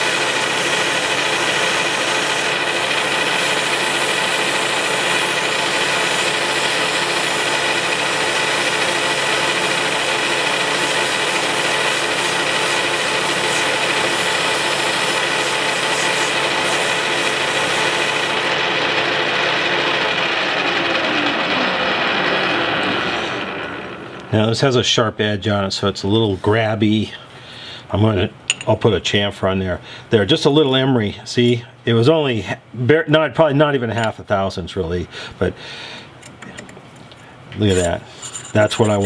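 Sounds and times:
metal lathe humming and whining: 0.0 - 24.3.

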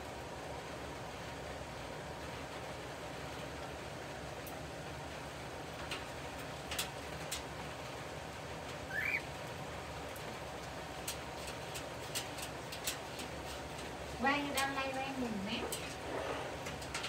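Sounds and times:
light rain hissing: 0.0 - 17.0
raindrops ticking on surfaces: 0.0 - 17.0
rising bird chirp: 8.9 - 9.3.

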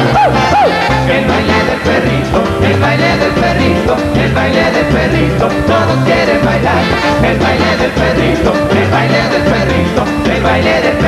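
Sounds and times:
men singing: 0.0 - 11.0
merengue band playing: 0.0 - 11.0.

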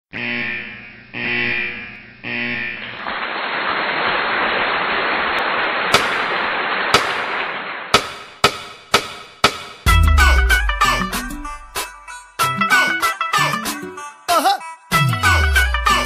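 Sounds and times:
sharp cracks: 3.0 - 9.8
firework-like bangs: 3.0 - 9.9.

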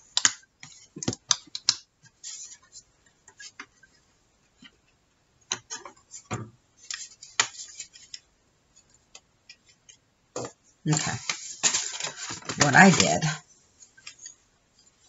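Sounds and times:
paper pages rustling: 10.9 - 14.3.

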